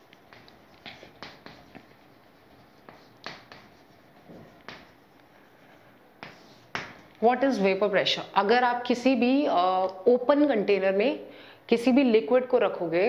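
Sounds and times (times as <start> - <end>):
chalk tapping and scratching: 0.0 - 7.8.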